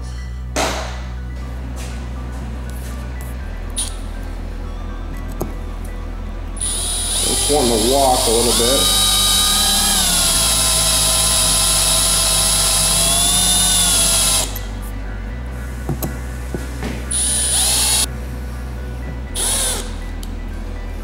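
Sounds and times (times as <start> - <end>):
cordless drill whining: 6.6 - 14.6, 17.1 - 18.1, 19.4 - 20.0.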